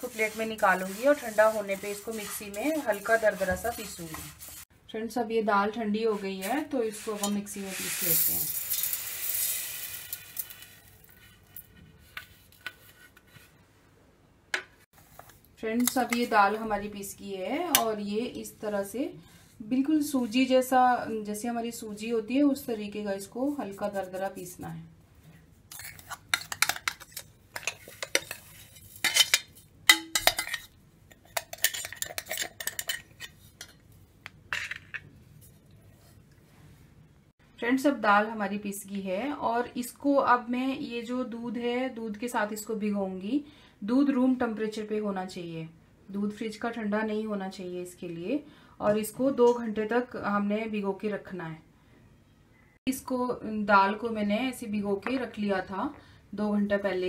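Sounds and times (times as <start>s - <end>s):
grains sliding into steel jar: 6.5s - 11.1s
spoon scraping and clinking in metal jar: 7.0s - 9.5s, 25.7s - 33.8s.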